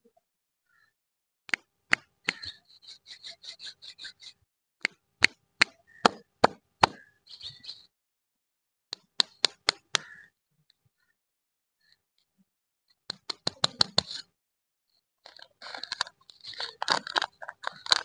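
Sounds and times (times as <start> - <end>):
fingers tapping on plastic wrapper: 13.1 - 14.1, 15.3 - 18.0
wrapper crinkle: 15.3 - 18.0.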